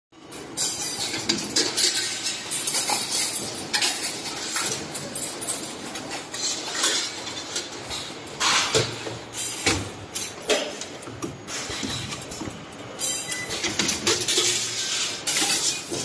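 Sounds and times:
metallic clinks and clanks: 9.4 - 16.0.

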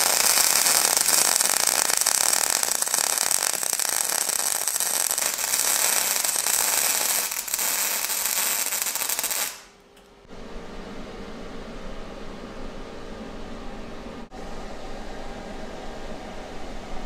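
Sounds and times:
welding arc crackling: 0.0 - 9.7
steady hum: 0.0 - 17.0.

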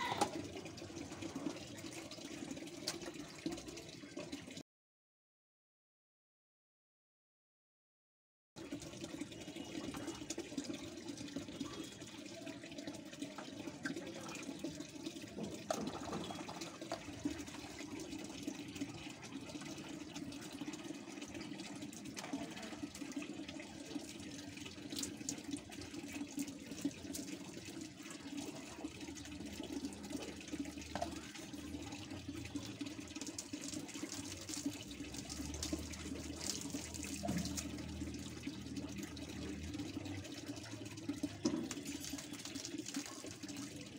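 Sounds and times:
running water: 0.0 - 4.6, 8.6 - 43.9
water splashing on concrete floor: 13.2 - 20.2, 29.2 - 43.9.

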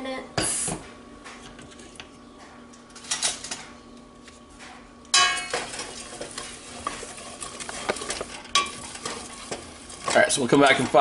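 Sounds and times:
loud ringing clank: 5.1 - 5.6
stirring scrapes in pot: 5.5 - 11.0.

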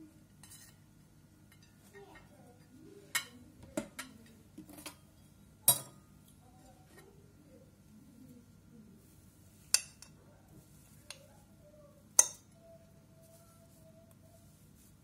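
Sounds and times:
fork clinking on porcelain plate: 12.2 - 12.6.

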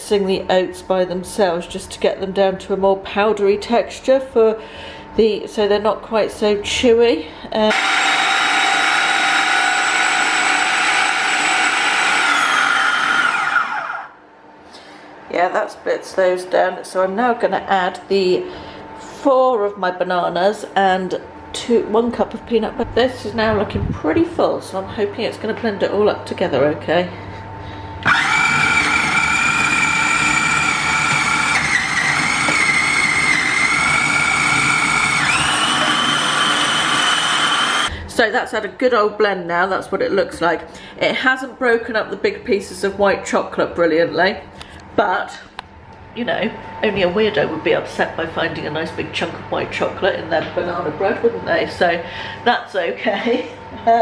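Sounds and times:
food processor motor whine: 7.7 - 14.2, 27.9 - 38.0.

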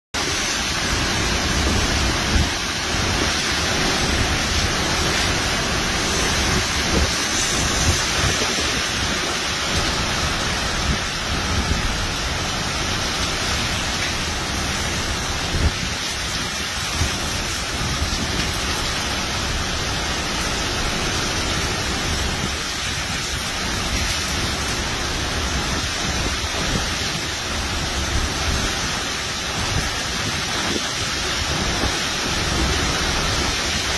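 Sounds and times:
heavy rain: 0.1 - 33.9
hurricane wind: 0.1 - 33.9.

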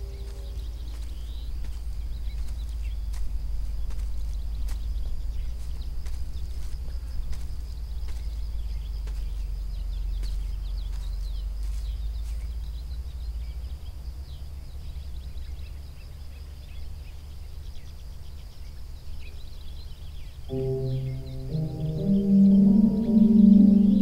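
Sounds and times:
birds chirping: 0.0 - 24.0
low wind rumble: 0.0 - 24.0
steady high hum: 20.5 - 24.0.

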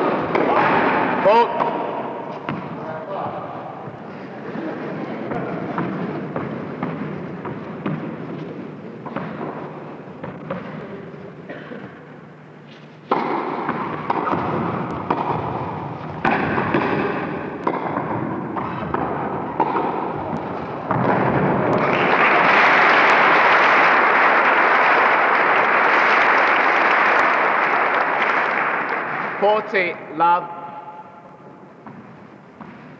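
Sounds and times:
racquet hitting tennis ball: 0.0 - 4.0, 5.3 - 11.1, 12.8 - 29.4, 31.0 - 32.9
crowd applauding: 21.4 - 29.7.

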